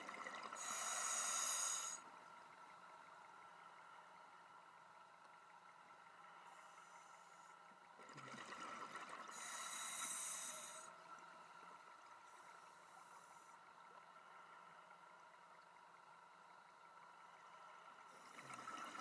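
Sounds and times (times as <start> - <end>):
diver breathing through regulator: 0.6 - 2.0, 9.3 - 10.9
exhaled bubbles rushing: 8.0 - 9.3.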